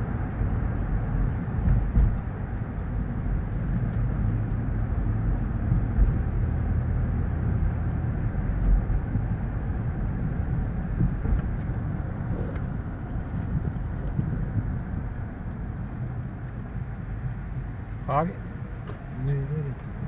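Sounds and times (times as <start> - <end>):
car engine and tyres rumbling: 0.0 - 20.0.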